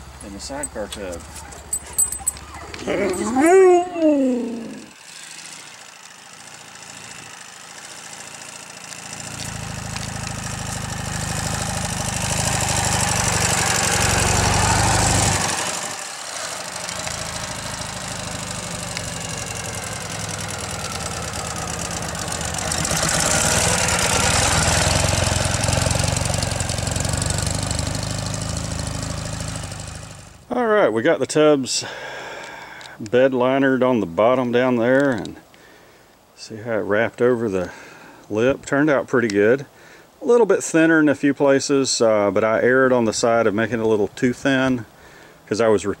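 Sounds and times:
motorcycle engine passing: 0.0s - 30.5s.

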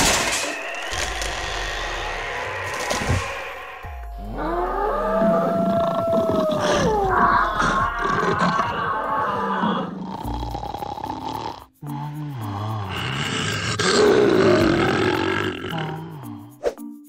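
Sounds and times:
animal calls: 0.5s - 10.2s
tiger roaring: 0.6s - 11.6s, 12.5s - 16.1s.

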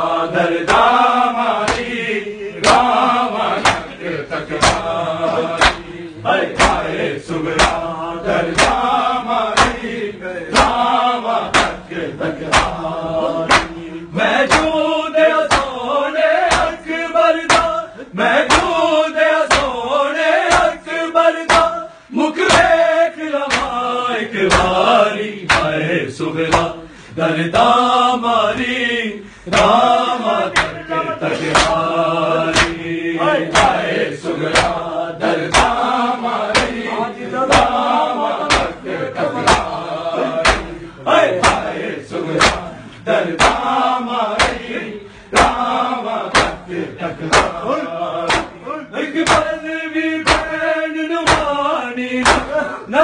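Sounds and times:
men chanting: 0.0s - 53.0s
palms slapping chests: 0.6s - 2.0s, 2.6s - 15.8s, 16.4s - 17.8s, 18.4s - 18.8s, 19.4s - 19.8s, 20.4s - 20.8s, 21.4s - 21.8s, 23.4s - 23.8s, 25.4s - 25.8s, 26.4s - 26.8s, 29.5s - 48.6s, 49.2s - 50.6s, 51.2s - 51.6s, 52.2s - 52.6s.

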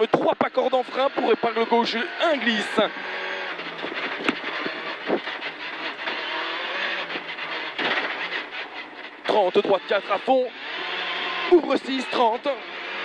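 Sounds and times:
rally car engine at speed: 0.0s - 13.0s
road and tyre noise: 0.0s - 13.0s
sharp cracks: 7.1s - 8.6s.

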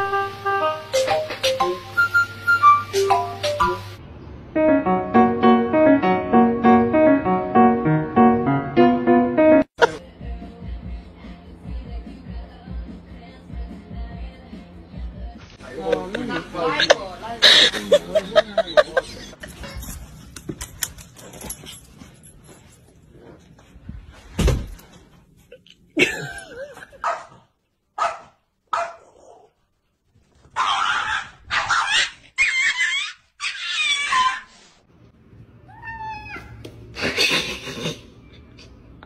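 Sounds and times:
thump: 24.3s - 24.8s
small dog barking: 27.0s - 27.4s, 28.0s - 29.1s, 30.6s - 32.8s.

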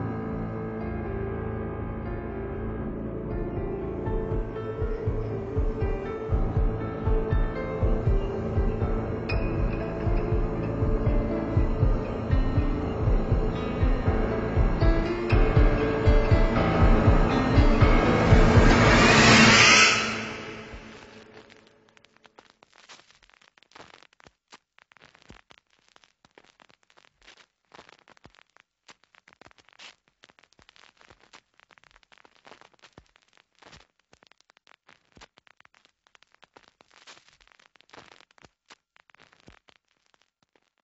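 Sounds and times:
crackling and popping: 21.1s - 41.0s.

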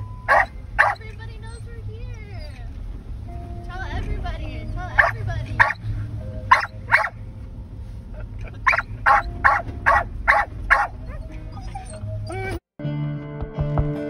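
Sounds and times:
steady low rumble: 0.0s - 12.6s
dog barking: 0.3s - 1.1s, 5.0s - 5.8s, 6.5s - 7.2s, 8.6s - 11.8s
dog whining: 0.3s - 2.8s, 4.6s - 5.8s, 6.5s - 7.1s, 8.6s - 12.6s.

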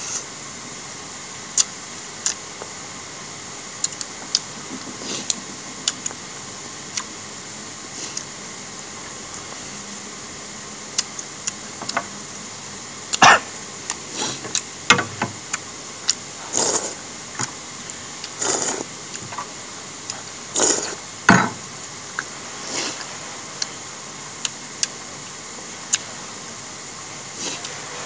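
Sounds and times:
mouth clicks: 1.5s - 2.4s, 3.8s - 6.2s
man chewing: 1.5s - 2.8s, 3.7s - 9.9s, 10.8s - 12.4s, 13.0s - 25.0s
slurping soup: 16.4s - 17.0s, 18.2s - 19.5s, 20.1s - 21.0s.

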